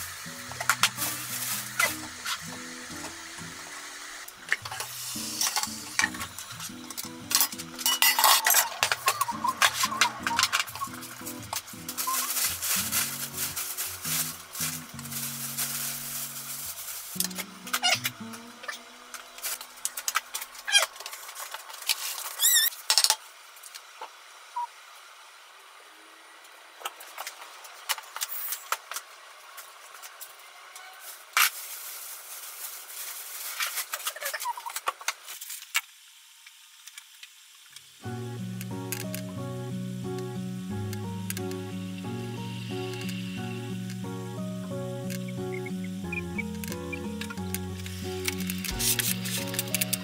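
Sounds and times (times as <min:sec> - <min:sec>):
background music: 0:00.0 - 0:03.9, 0:04.8 - 0:18.5, 0:38.1 - 0:50.0
paper towel rustling: 0:00.7 - 0:02.5, 0:08.4 - 0:17.2
dishes and tray clattering: 0:07.4 - 0:10.7.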